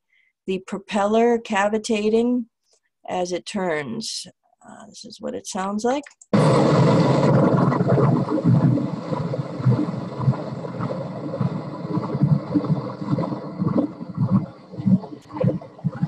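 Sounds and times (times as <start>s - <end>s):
ship propeller cavitating underwater: 6.4s - 16.0s.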